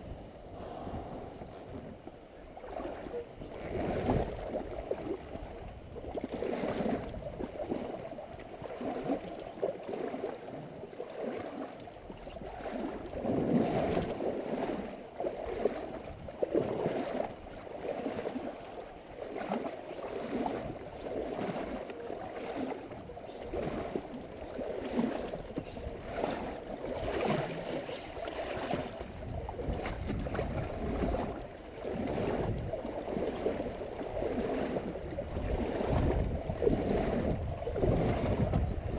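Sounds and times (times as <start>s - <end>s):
river water splashing against boat: 0.0s - 38.9s.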